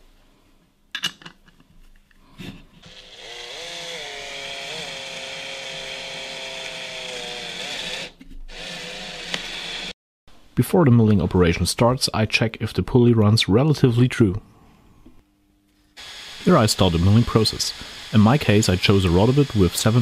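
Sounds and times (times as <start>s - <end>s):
power drill motor: 2.8s - 9.9s, 16.0s - 20.0s.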